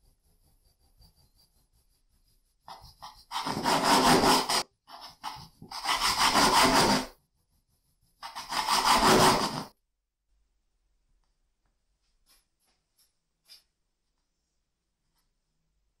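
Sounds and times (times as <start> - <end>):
knife sawing through bread: 2.7 - 9.7.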